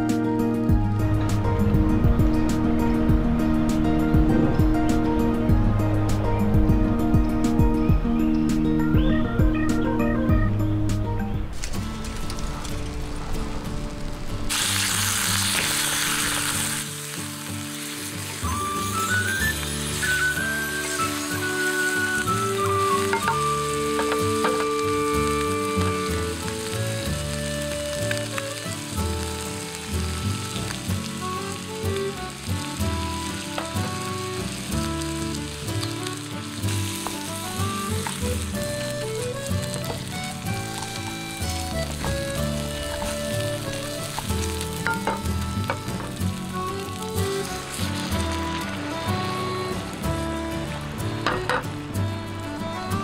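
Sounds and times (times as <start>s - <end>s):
light background music: 0.0s - 53.0s
food sizzling in oil: 11.6s - 50.3s.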